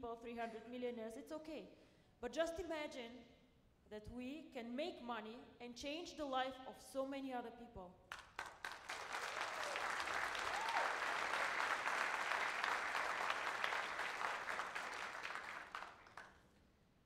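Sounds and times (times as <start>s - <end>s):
audience applauding: 8.1s - 16.4s.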